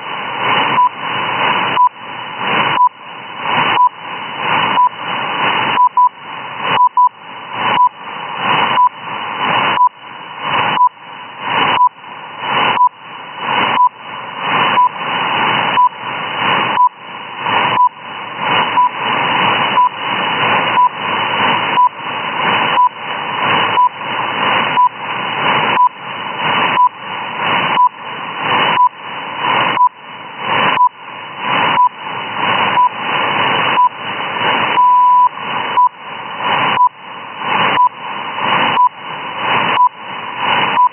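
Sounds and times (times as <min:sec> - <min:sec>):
long beep: 0:06.8 - 0:07.2, 0:34.7 - 0:36.0
short time-signal beeps: 0:34.7 - 0:36.0.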